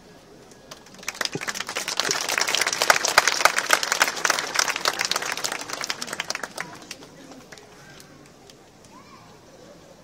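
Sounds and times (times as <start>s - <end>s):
crowd applauding: 0.7s - 7.7s.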